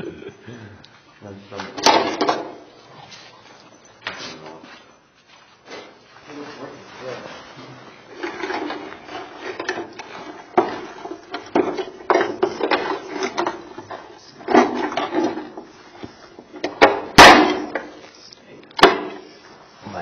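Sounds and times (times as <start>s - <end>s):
loud sharp crack: 17.2s - 17.8s.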